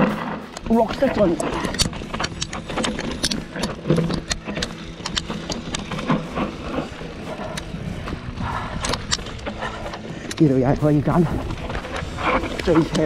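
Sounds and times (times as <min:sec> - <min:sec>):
bike rattling over rocks: 0:00.0 - 0:13.0
low rumble of tyre noise: 0:00.0 - 0:13.0.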